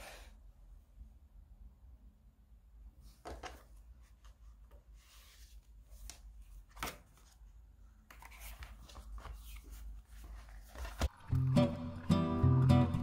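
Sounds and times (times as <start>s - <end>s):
paper pages rustling: 3.3s - 11.3s.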